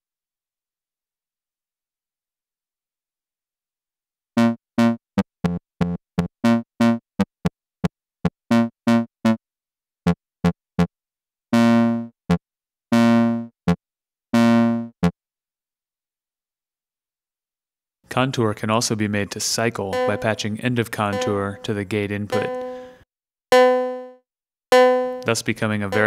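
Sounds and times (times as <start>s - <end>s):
synthesizer notes: 19.8s - 22.9s, 23.5s - 24.2s, 24.8s - 26.0s.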